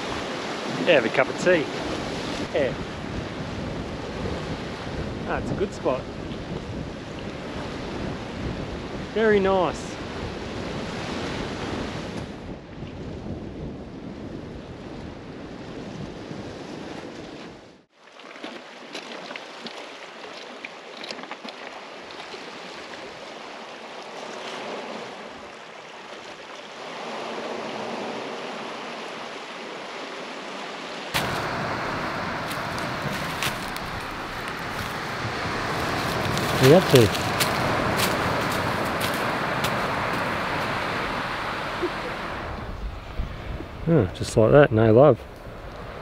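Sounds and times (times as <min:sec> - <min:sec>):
wind on the microphone: 0:01.7 - 0:17.7, 0:31.2 - 0:46.0
waves washing against rocks: 0:31.2 - 0:42.6.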